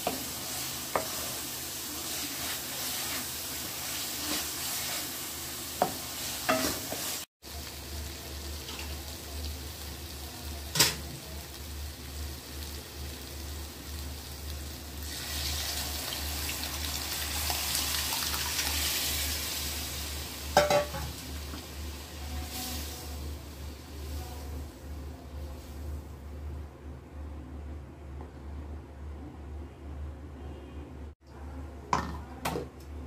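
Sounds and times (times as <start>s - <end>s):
paste sizzling in oil: 0.0s - 10.1s, 12.3s - 24.5s.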